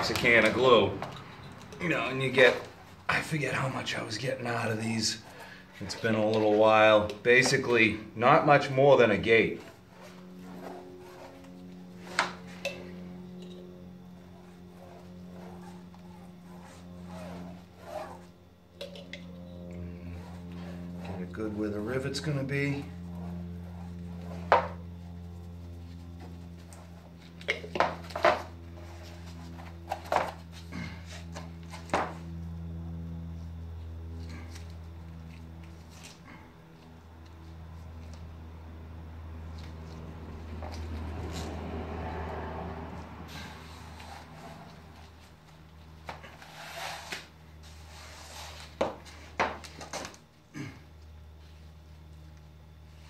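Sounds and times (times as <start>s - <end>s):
steady low hum: 0.0s - 53.0s
gloved hands rubbing fabric: 14.0s - 18.4s.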